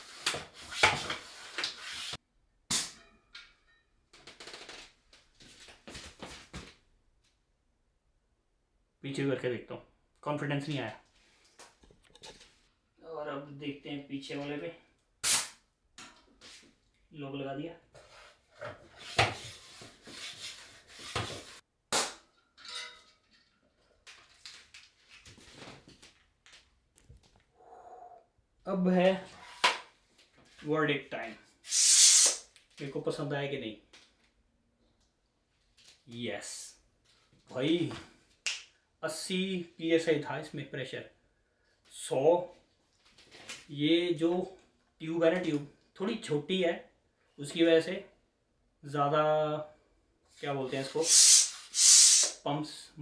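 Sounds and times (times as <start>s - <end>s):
sudden air hiss: 31.6s - 32.4s, 50.9s - 52.4s
floor pump hissing strokes: 31.7s - 32.4s, 50.8s - 52.4s.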